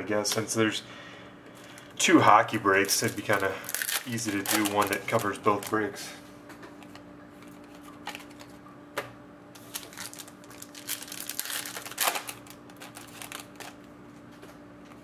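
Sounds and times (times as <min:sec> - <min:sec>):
foil wrapper crinkling: 0:02.5 - 0:06.0, 0:09.6 - 0:13.9
trading cards clicking: 0:03.1 - 0:05.8.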